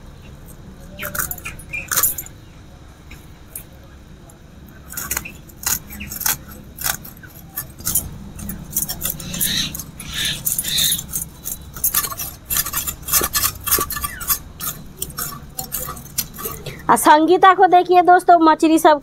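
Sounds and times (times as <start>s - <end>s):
knife scraping fish scales: 4.9s - 16.9s.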